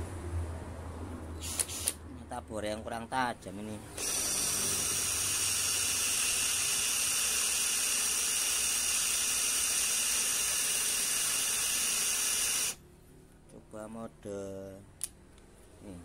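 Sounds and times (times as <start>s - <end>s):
cordless drill boring into metal: 1.4s - 2.0s, 4.0s - 12.8s.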